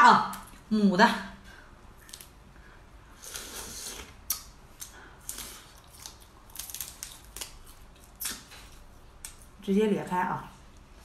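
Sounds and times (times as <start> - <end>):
shrimp shell cracking: 4.3 - 8.6.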